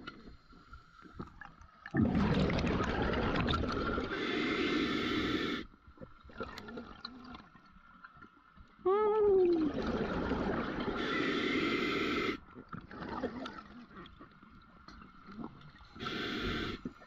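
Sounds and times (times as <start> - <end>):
small underwater gurgles: 0.0 - 8.6, 9.3 - 17.0
underwater exhaled bubbles rushing: 1.8 - 5.6, 9.5 - 13.9.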